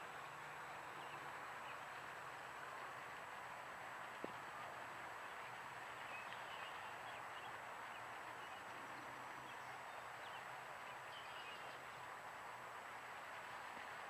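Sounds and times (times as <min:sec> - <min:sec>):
outdoor background hiss: 0:00.0 - 0:14.0.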